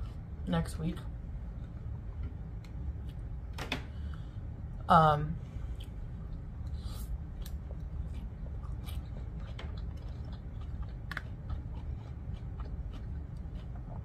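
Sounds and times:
person chewing noodles: 0:05.7 - 0:14.0.

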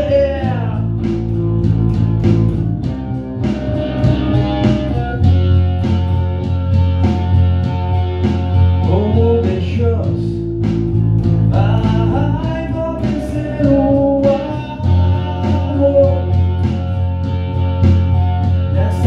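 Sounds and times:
man singing: 0:00.0 - 0:01.0, 0:08.8 - 0:10.4, 0:11.5 - 0:16.6, 0:18.7 - 0:19.0
electric bass low notes: 0:00.0 - 0:19.0
electric guitar: 0:00.0 - 0:19.0.

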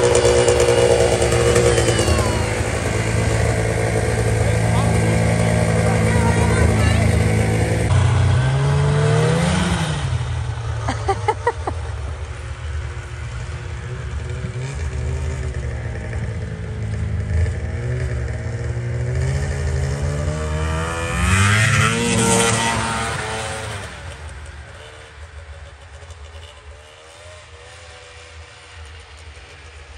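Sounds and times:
engine running steadily: 0:00.0 - 0:21.0
snowmobile engine pulling away: 0:00.0 - 0:29.9.

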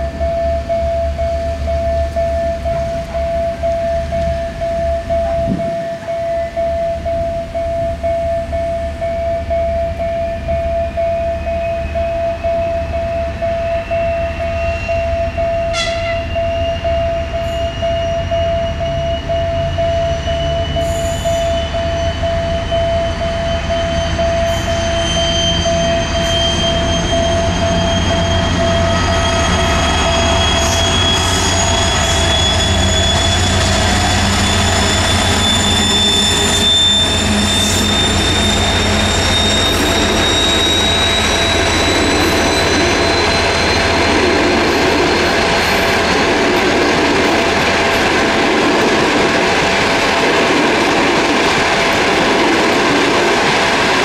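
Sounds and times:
diesel locomotive engine rumble: 0:00.0 - 0:54.0
steady high tone: 0:00.0 - 0:54.0
rising whine: 0:21.6 - 0:54.0.

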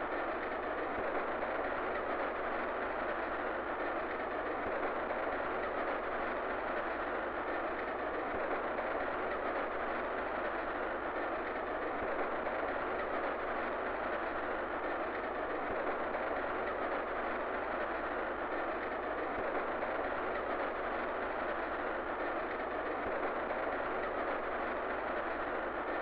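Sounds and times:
train running inside carriage: 0:00.0 - 0:26.0.

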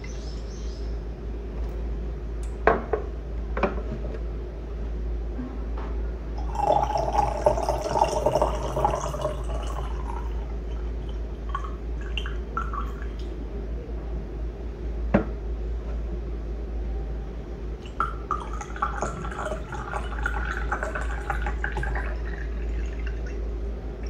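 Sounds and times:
water pouring into pitcher: 0:06.4 - 0:13.3, 0:17.9 - 0:23.4
water dripping: 0:06.4 - 0:13.4, 0:17.8 - 0:23.4.

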